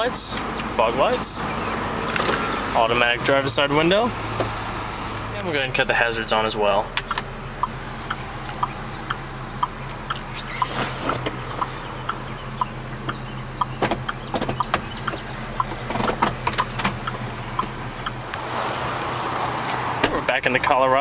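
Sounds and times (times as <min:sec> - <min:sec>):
engine idling hum: 0:00.0 - 0:21.0.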